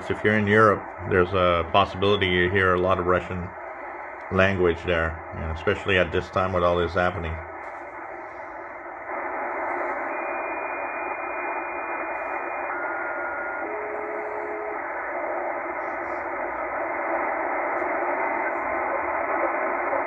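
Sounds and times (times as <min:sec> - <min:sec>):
radio band noise hiss: 0:00.0 - 0:20.0
radio signal whistle: 0:08.0 - 0:20.0.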